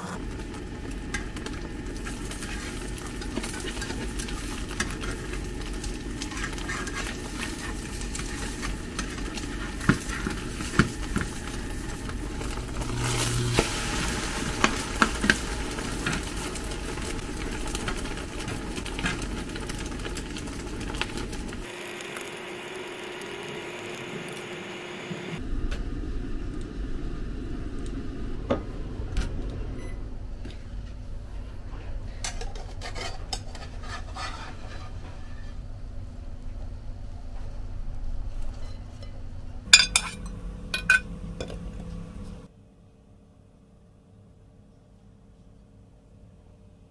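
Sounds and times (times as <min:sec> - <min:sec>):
omelette sizzling in a frying pan: 0:00.2 - 0:25.2
metal spatula scraping a pan: 0:02.3 - 0:10.8, 0:32.2 - 0:35.6.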